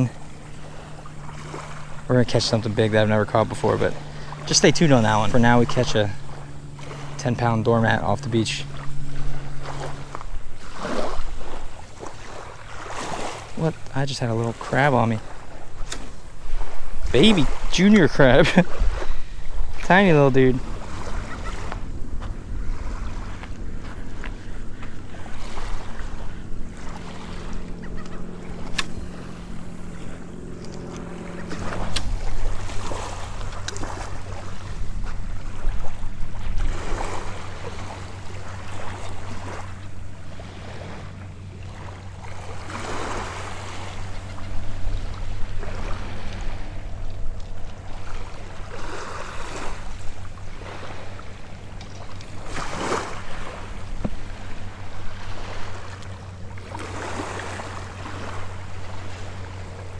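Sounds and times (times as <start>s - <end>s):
distant motorboat engine hum: 0.0s - 59.9s
small waves washing onto sand: 0.0s - 59.9s
wind on microphone: 15.4s - 41.0s.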